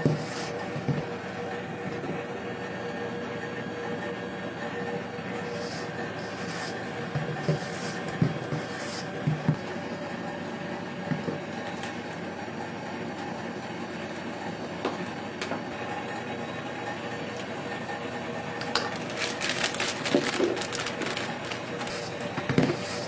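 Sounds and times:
room hum: 0.0 - 23.0
spatula scraping batter in bowl: 5.5 - 9.5.

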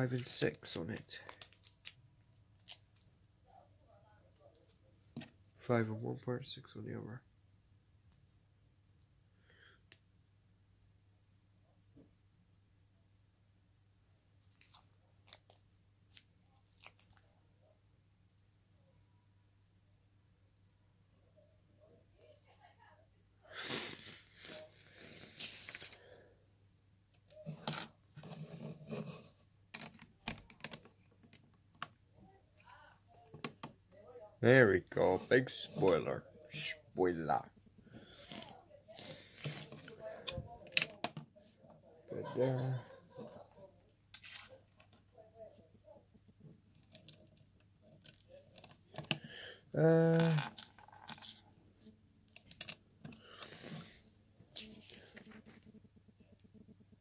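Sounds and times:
person humming: 49.7 - 50.6
plastic bricks clicking: 52.3 - 53.2.

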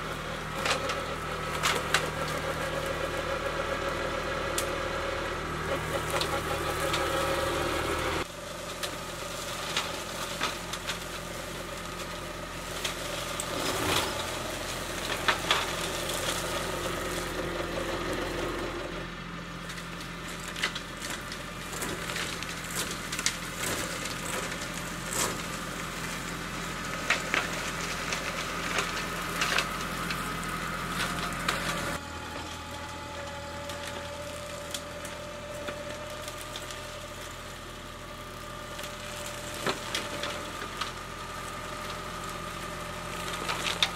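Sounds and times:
diesel tractor engine running: 0.0 - 43.9
flail mower mulching: 0.0 - 43.9.

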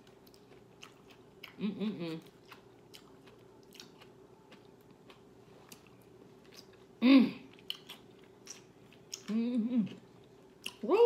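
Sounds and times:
person chewing salad: 0.0 - 10.8.

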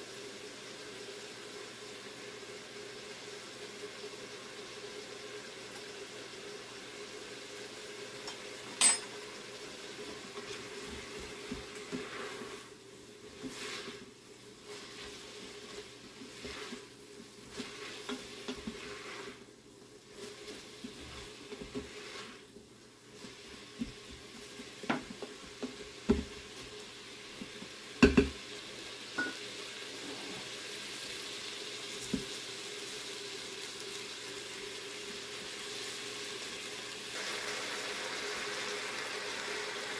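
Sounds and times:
onions sizzling: 0.0 - 39.9
wooden spoon scraping pot: 10.3 - 22.6
knocks against pot: 28.0 - 28.4.

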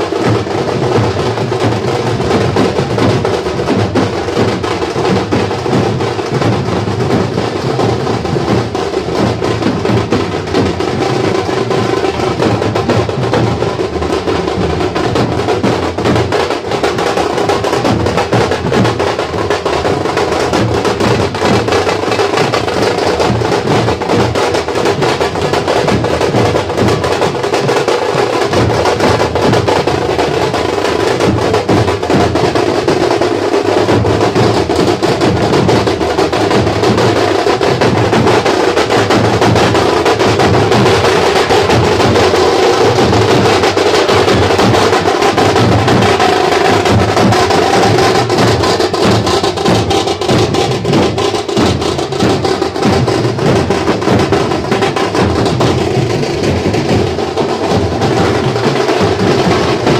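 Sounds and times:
drum band playing fast beat: 0.0 - 59.9.

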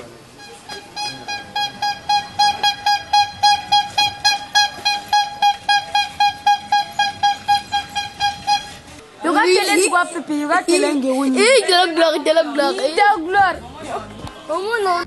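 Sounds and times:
bicycle horn tooting: 0.4 - 8.9.

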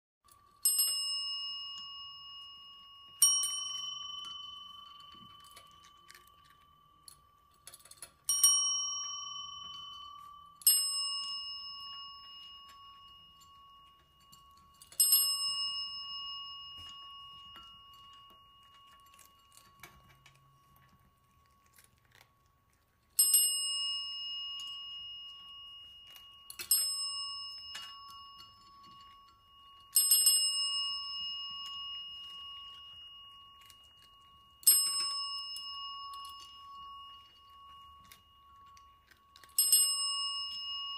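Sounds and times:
desk service bell dinging: 8.3 - 20.6.

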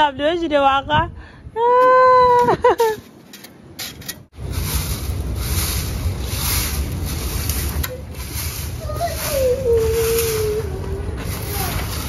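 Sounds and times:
wind rumble on microphone: 0.0 - 3.0, 4.4 - 12.0
broom sweeping grass on dirt: 4.3 - 12.0.

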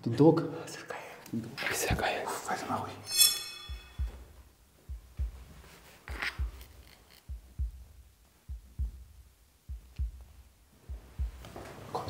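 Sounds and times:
heartbeat thumps: 3.7 - 12.0.

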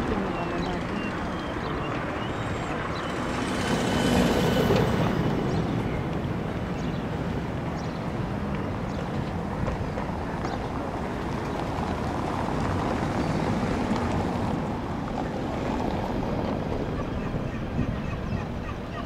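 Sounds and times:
boat engine droning: 0.0 - 6.1.

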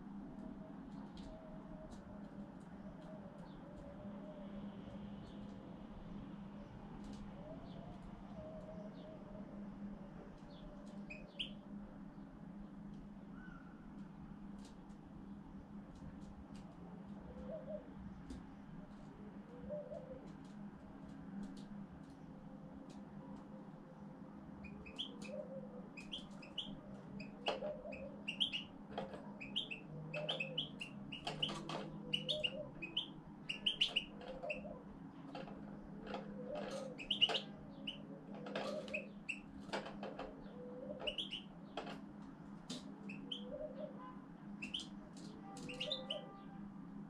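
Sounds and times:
goldfinch chirping and twittering: 24.6 - 25.3, 26.0 - 28.7, 29.4 - 34.6, 36.6 - 38.0, 41.0 - 41.4, 44.6 - 44.9, 45.6 - 46.2.

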